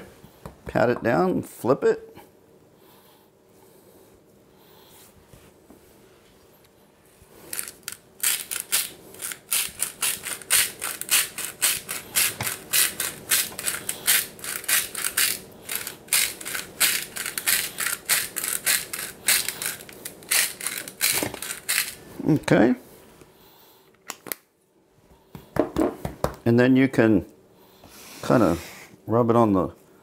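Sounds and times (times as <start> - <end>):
salt grinder grinding: 7.4 - 22.1.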